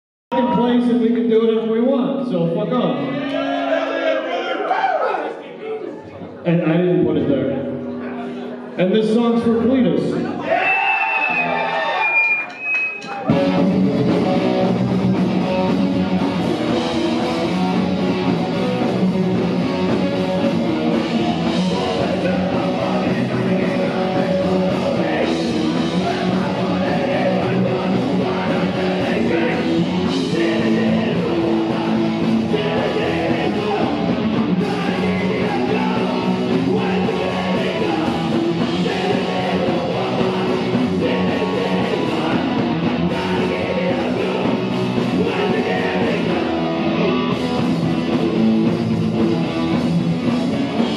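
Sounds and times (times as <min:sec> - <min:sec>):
electric guitar: 0:11.2 - 0:50.9
drum kit: 0:12.6 - 0:50.9
person singing: 0:20.6 - 0:47.4.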